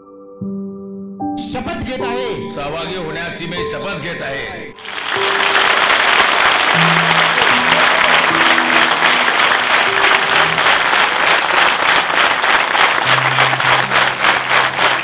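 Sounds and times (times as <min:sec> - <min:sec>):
soft background music: 0:00.0 - 0:10.4
large audience applauding: 0:04.8 - 0:15.0.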